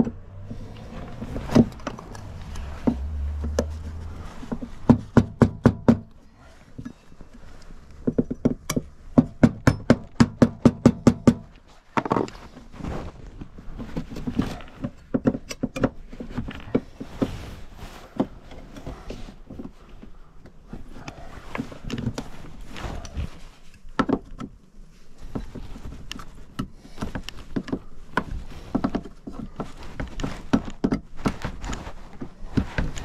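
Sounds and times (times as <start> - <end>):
plastic scraping: 0.0 - 5.2.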